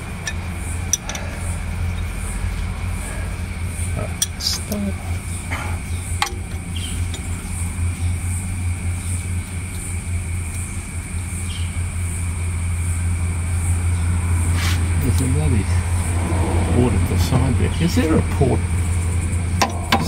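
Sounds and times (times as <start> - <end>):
tractor engine idling: 0.0 - 20.0
spanner click: 0.2 - 1.2.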